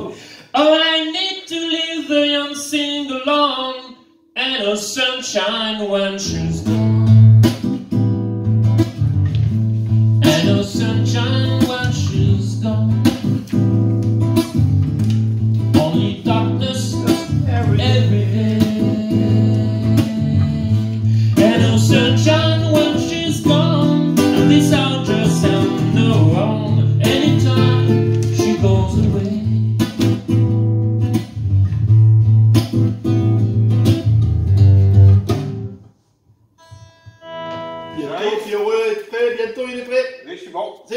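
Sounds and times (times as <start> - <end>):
man singing: 0.0 - 6.8, 10.2 - 13.2, 15.7 - 29.9
classical guitar: 6.2 - 35.9, 36.6 - 38.7.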